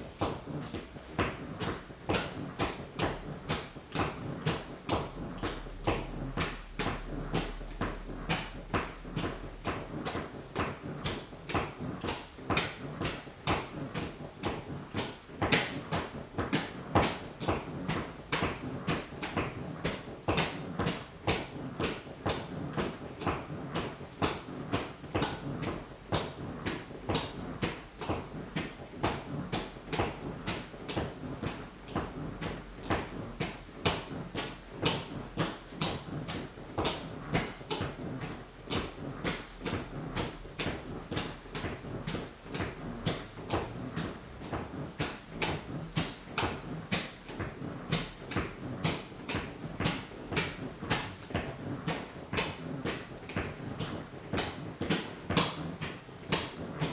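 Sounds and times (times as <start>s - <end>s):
sneaker tapping on wooden floor: 0.1s - 56.9s.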